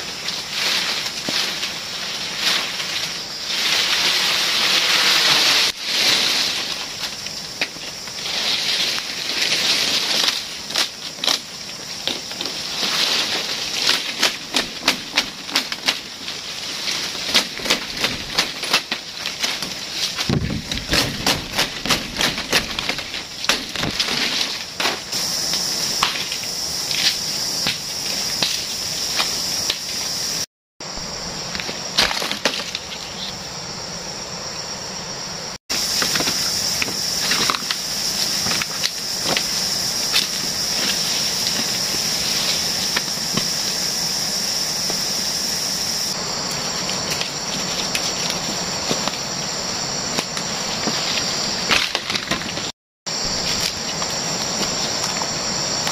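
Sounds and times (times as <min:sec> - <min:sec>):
insects droning: 0:00.0 - 0:55.9
stalks snapping and knocking: 0:08.8 - 0:29.9, 0:31.6 - 0:33.0, 0:50.1 - 0:52.7.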